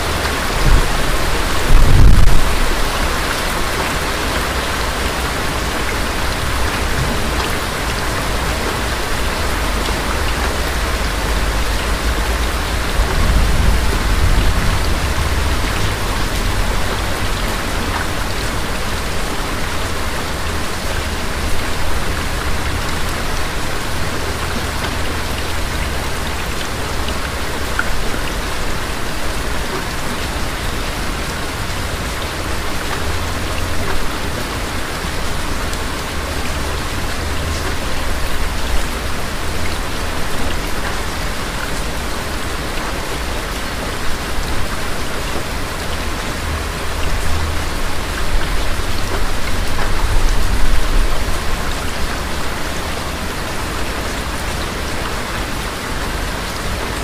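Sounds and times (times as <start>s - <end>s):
low rumble of thunder: 0.0s - 4.1s, 11.4s - 18.0s
steady rain falling: 0.0s - 57.0s.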